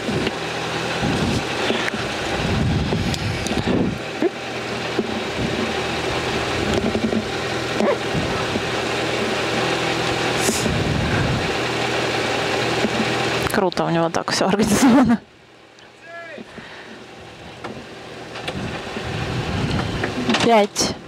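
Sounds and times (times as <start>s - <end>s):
car engine idling: 0.0s - 21.0s
low rumbles and knocks: 2.2s - 9.4s, 17.6s - 20.6s.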